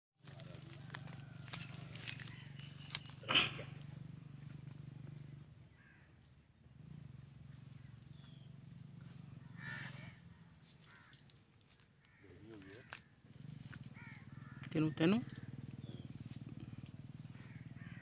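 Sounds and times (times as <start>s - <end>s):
crows cawing: 0.3s - 3.9s, 5.7s - 6.4s, 9.0s - 18.0s.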